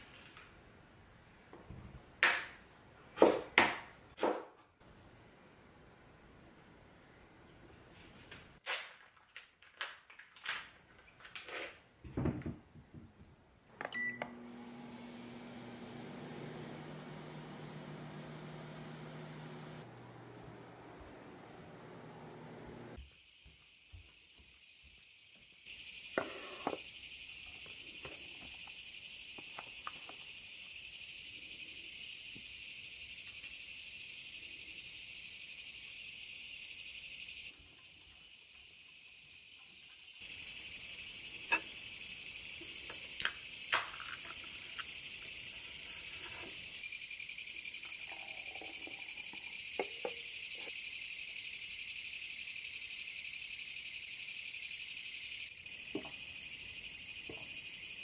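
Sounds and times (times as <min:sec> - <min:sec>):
insect chorus chirring: 0:23.0 - 0:58.0.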